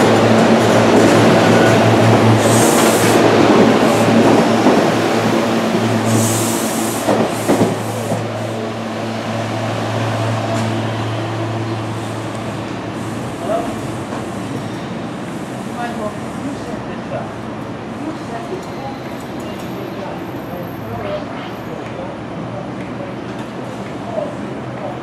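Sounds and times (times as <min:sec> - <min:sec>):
train wheels rolling: 0:00.0 - 0:15.0.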